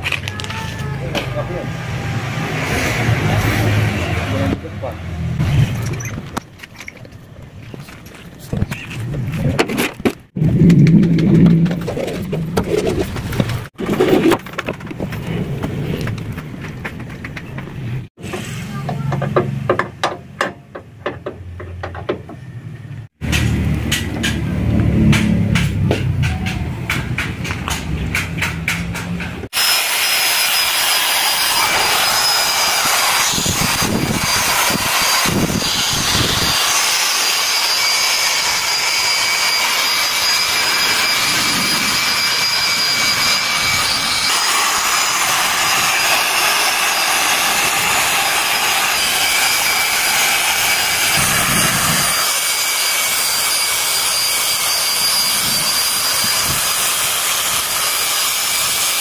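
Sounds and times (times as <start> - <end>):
electric drill polishing steel: 29.5 - 59.0.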